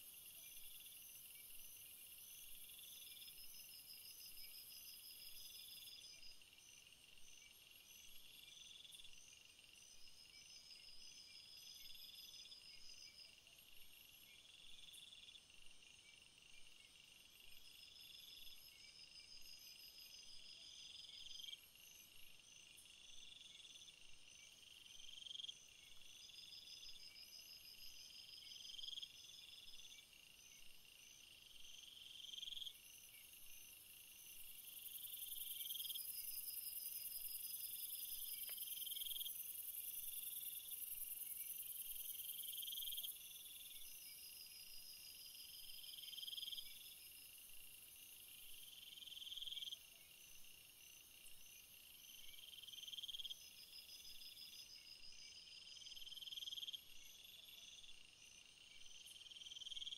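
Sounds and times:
crickets chirping: 0.0 - 59.9
higher steady insect trill: 17.1 - 59.9.

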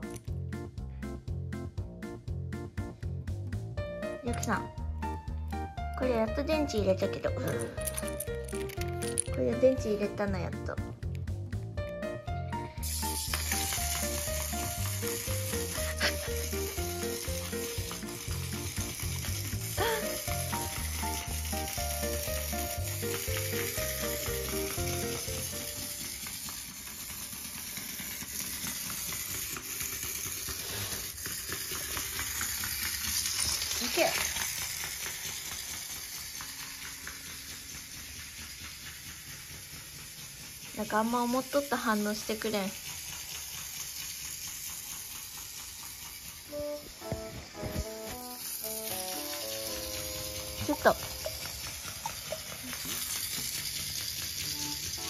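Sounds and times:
crackling hiss: 43.2 - 55.0.

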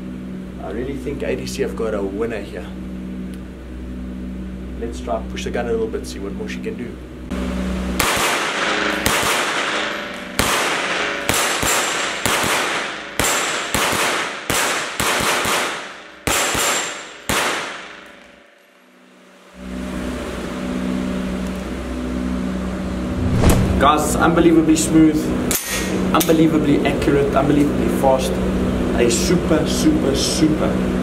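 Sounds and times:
gunshots echoing indoors: 10.4 - 18.2
low hum: 18.2 - 24.4.

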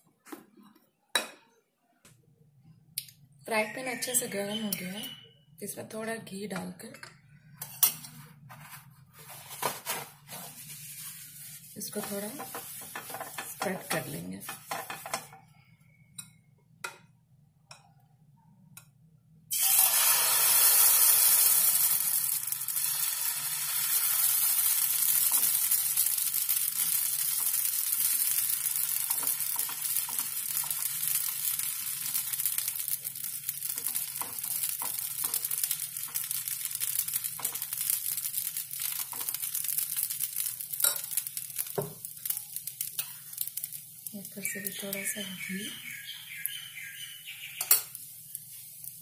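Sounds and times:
batter sizzling in frying pan: 8.6 - 15.4, 19.5 - 49.0
ladle scraping and tapping pan: 11.8 - 15.4.

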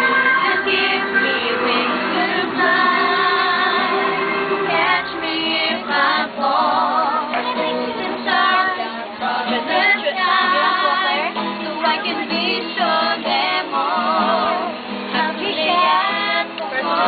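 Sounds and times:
group of people singing: 0.0 - 17.0.

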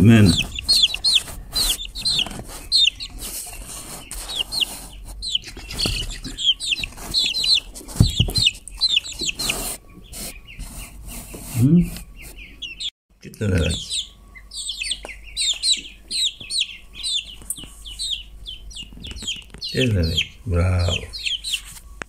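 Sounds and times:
chicks peeping: 0.0 - 22.0
dull bump: 7.8 - 8.6.

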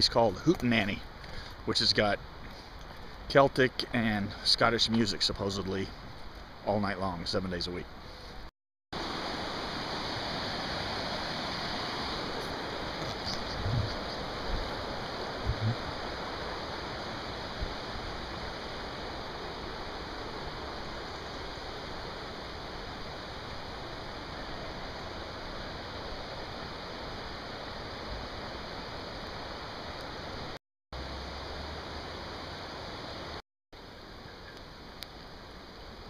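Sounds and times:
river water rushing over rapids: 9.0 - 34.0
low thumps: 15.4 - 15.8.

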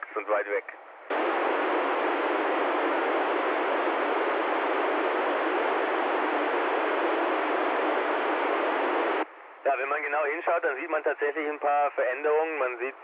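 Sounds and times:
radio receiver hiss: 1.1 - 9.3.

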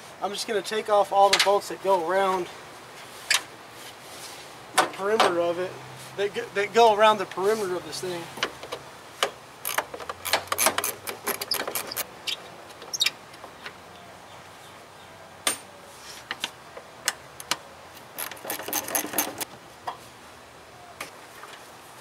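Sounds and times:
hand ratchet clicking: 18.2 - 19.5.

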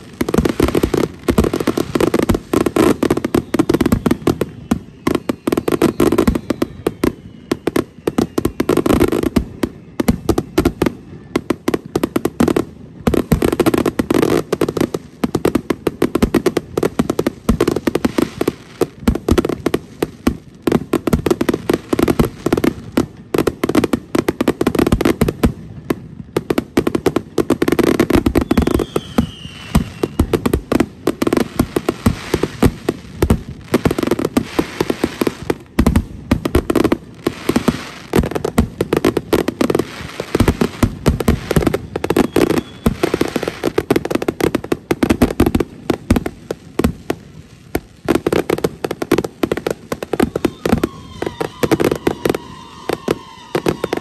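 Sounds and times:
falling firework whistle: 0.0 - 12.5, 27.6 - 44.5, 48.1 - 54.0
fireworks bangs: 0.0 - 54.0.

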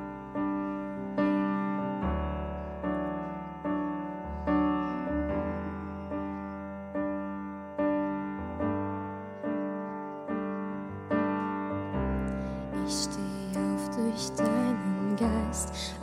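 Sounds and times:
digital piano chords: 0.0 - 16.0
woman singing: 12.8 - 16.0.

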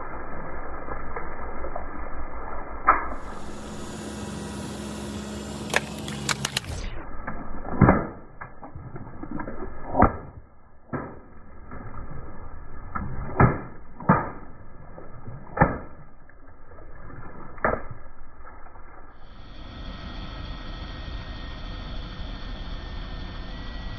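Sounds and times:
water splashing: 5.6 - 19.3.

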